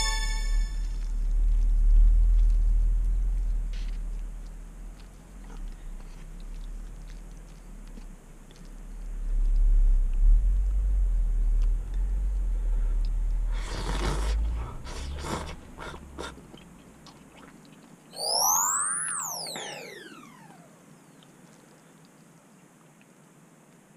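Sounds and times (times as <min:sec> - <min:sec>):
rising synthesizer sweeps: 0:00.0 - 0:01.0, 0:18.2 - 0:20.8
low rumble: 0:00.0 - 0:05.0, 0:08.2 - 0:16.2
person slurping noodles: 0:13.5 - 0:16.6.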